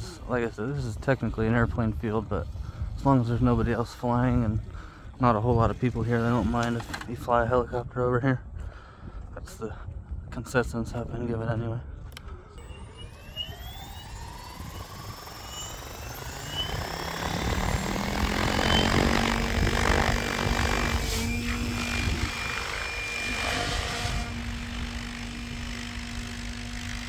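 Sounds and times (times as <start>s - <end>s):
electric motor whine: 12.6s - 27.0s
rushing rotor noise: 12.6s - 27.0s.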